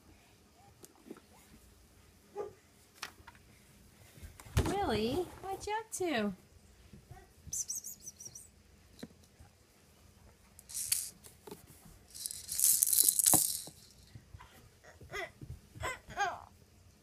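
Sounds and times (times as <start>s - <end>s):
plastic toys rattling: 10.6s - 11.3s, 12.1s - 14.1s.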